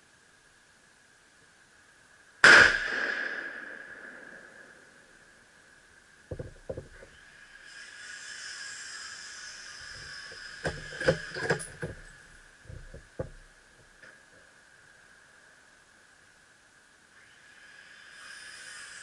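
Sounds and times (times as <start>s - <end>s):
soft hiss: 0.0s - 19.0s
rifle clicks and knocks: 6.3s - 7.1s, 10.6s - 13.5s.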